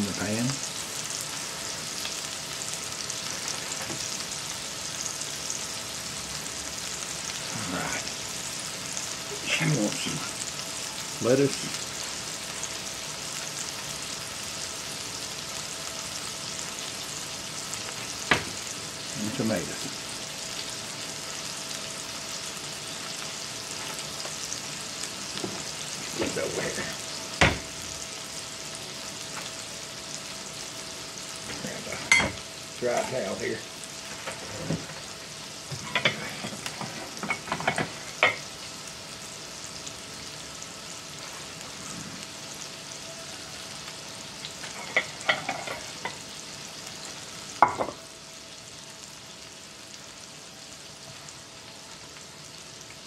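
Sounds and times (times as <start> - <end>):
patties sizzling in a skillet: 0.0 - 53.0
plates knocking and clicking: 35.7 - 38.4, 47.6 - 48.0.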